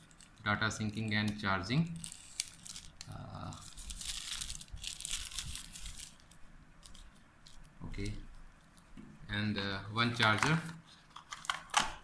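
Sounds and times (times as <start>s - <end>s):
plastic bags crinkling: 1.9s - 8.1s.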